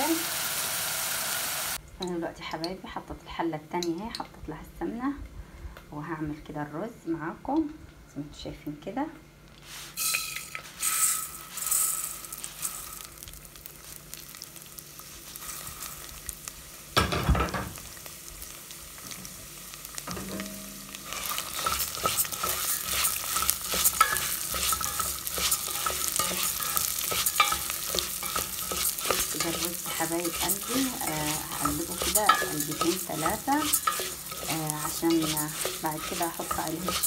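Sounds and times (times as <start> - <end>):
rice sizzling in hot ghee: 0.0 - 1.8, 9.6 - 37.0
spoon stirring and scraping: 9.7 - 13.2, 20.4 - 37.0.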